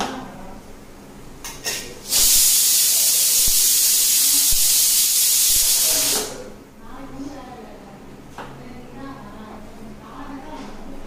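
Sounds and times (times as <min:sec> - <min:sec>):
loud steady hiss: 0:01.4 - 0:06.6.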